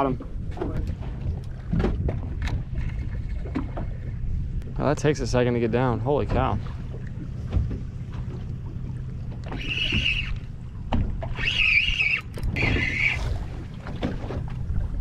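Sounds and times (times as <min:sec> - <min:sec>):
boat engine idling hum: 0:00.0 - 0:15.0
fishing reel whirring: 0:09.4 - 0:10.5, 0:11.2 - 0:13.4.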